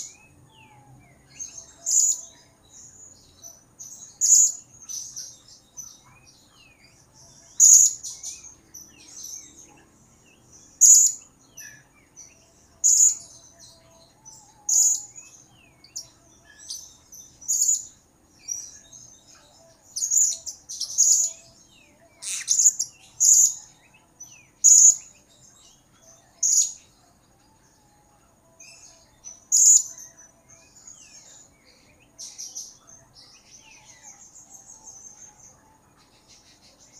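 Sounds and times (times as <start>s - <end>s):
parrot chirping: 22.2s - 23.5s.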